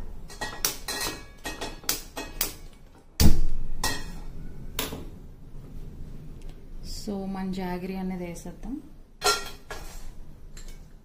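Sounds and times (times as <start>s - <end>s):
metal pan clinking on hob grate: 9.2s - 9.9s.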